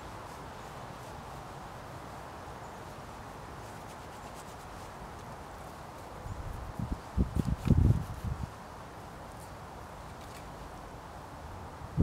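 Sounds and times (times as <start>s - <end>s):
paintbrush rubbing on panel: 3.6s - 5.3s.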